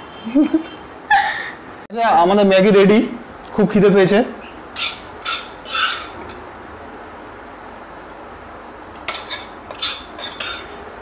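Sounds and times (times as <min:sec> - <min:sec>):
spatula scraping a pan: 0:04.8 - 0:06.2, 0:09.1 - 0:11.0.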